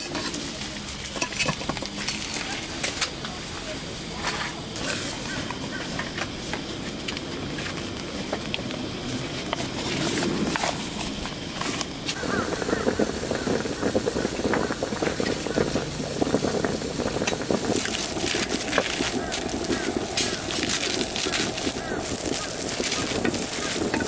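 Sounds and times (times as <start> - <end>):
faint indistinct voices: 0.0 - 10.7.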